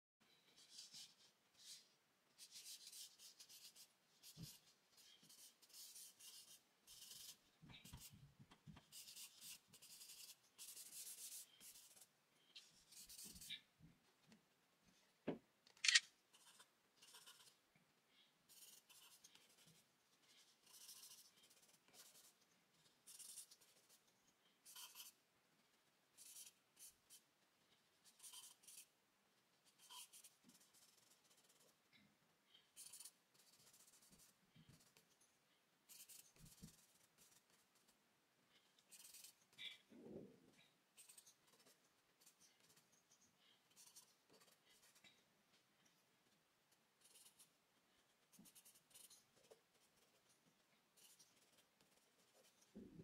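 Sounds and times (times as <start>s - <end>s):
charcoal scratching on paper: 18.5s - 22.4s, 28.1s - 28.9s, 29.7s - 31.8s.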